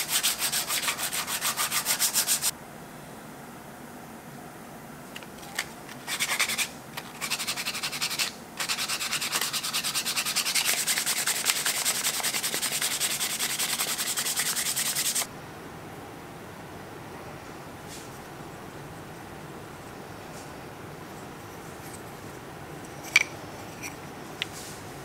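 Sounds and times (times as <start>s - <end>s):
sandpaper rubbing on wood: 0.0s - 2.5s, 6.0s - 15.3s.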